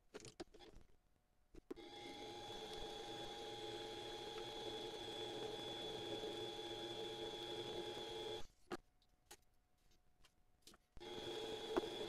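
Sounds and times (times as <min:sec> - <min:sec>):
lathe spindle whining: 0:01.8 - 0:08.4, 0:11.0 - 0:12.0.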